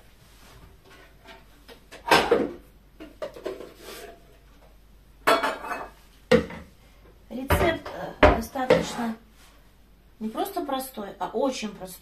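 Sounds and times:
kitchenware clattering: 0.9 - 4.3, 5.2 - 6.7, 7.4 - 9.2.

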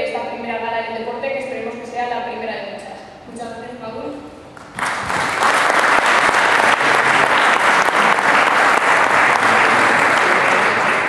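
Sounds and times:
audience applauding: 4.6 - 11.0.

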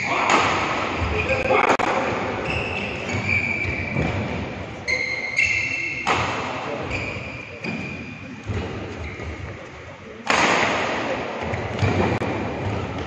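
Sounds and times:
shoes squeaking on court: 2.4 - 9.9.

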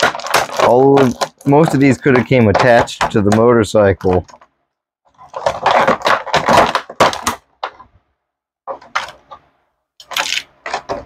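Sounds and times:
plastic packaging crackling: 0.0 - 4.5, 5.1 - 7.9, 10.0 - 11.0.

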